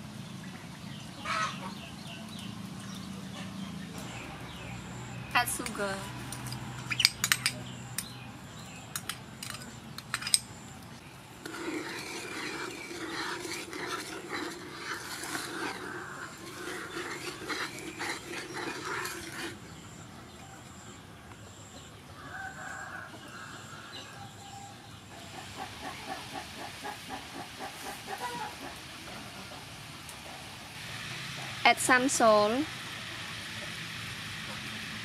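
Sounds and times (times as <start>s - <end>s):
chickens calling: 0.9s - 2.3s, 11.5s - 20.0s, 22.0s - 30.4s
metal spoon clinking bowl: 5.6s - 8.1s, 8.9s - 10.5s
sugar water bubbling in pan: 11.1s - 20.0s.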